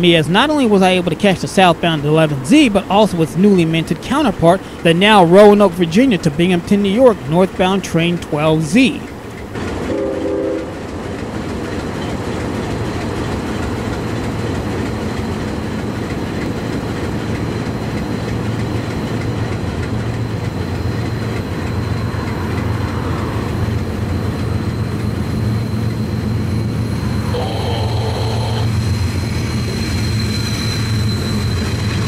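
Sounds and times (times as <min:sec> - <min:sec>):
diesel locomotive rumble: 0:00.0 - 0:32.0
faint high whine: 0:25.2 - 0:31.8.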